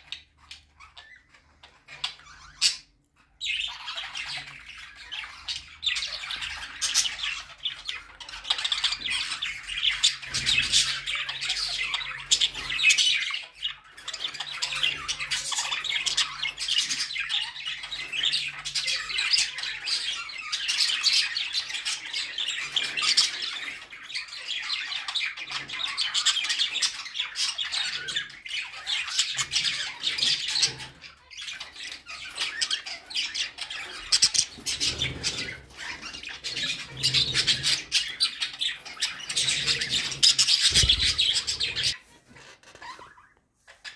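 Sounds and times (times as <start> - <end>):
budgerigars chattering: 0.0 - 43.9.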